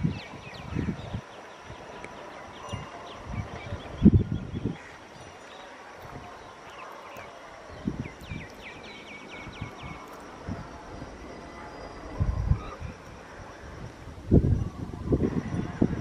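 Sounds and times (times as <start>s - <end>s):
bird chirping: 0.0s - 10.4s
wind gusts on microphone: 0.0s - 16.0s.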